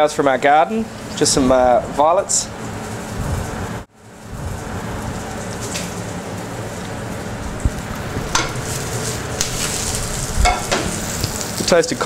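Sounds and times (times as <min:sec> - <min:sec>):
vegetables sizzling in a frying pan: 0:02.8 - 0:12.0
utensil knocking on pan: 0:08.3 - 0:08.6, 0:10.4 - 0:11.0.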